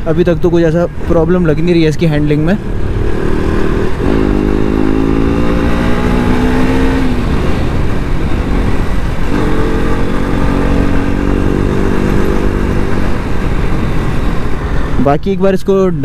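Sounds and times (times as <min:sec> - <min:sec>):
wind and road noise: 0:00.0 - 0:16.0
motorcycle engine running: 0:02.3 - 0:15.0.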